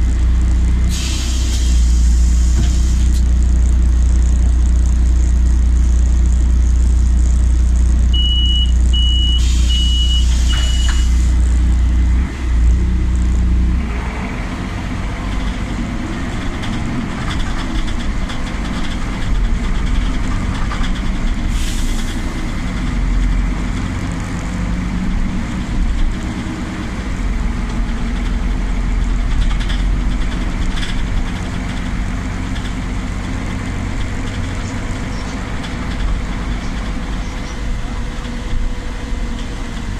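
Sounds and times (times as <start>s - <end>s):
bus driving noise: 0.0s - 39.9s
bus engine idling hum: 0.0s - 39.9s
short hiss of air: 0.9s - 3.2s, 21.5s - 22.2s
door warning beeps: 8.2s - 11.2s.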